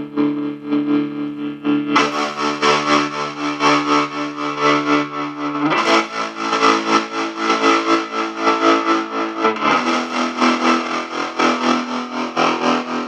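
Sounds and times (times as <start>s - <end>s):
distorted electric guitar chords: 0.0s - 13.0s.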